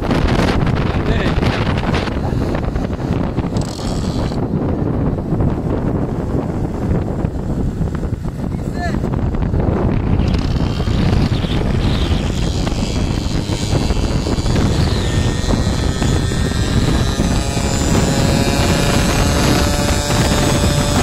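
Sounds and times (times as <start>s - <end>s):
wind rushing over microphone: 0.0s - 21.0s
two-stroke moped engine: 1.1s - 4.5s, 10.2s - 21.0s.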